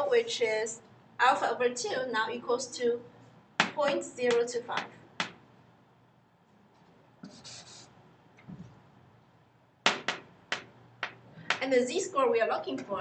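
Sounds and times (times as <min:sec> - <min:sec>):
chalk tapping on board: 0:03.6 - 0:05.4, 0:09.9 - 0:11.6
chalk scratching on chalkboard: 0:07.2 - 0:07.9.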